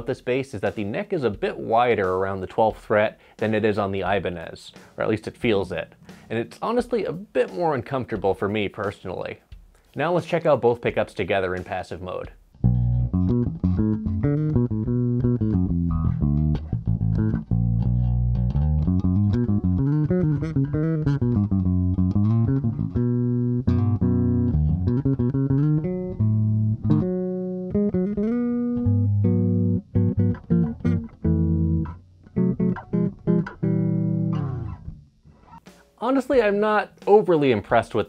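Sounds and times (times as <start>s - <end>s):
electric bass plucked notes: 12.5s - 35.6s.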